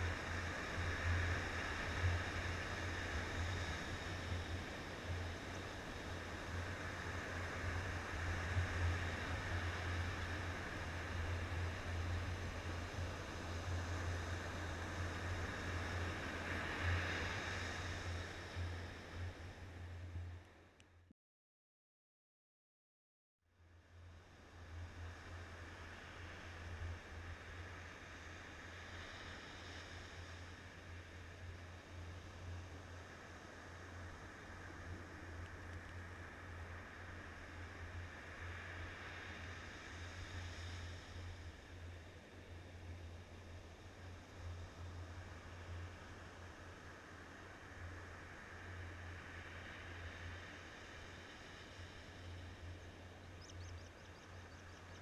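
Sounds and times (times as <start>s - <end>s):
hiss of surf: 0.0s - 20.4s, 24.0s - 54.6s
wind rumble on microphone: 0.0s - 20.6s.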